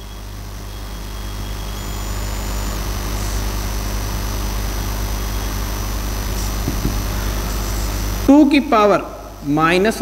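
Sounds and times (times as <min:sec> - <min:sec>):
faint high-pitched whines: 0:00.0 - 0:09.8
steady low hum: 0:00.0 - 0:10.0.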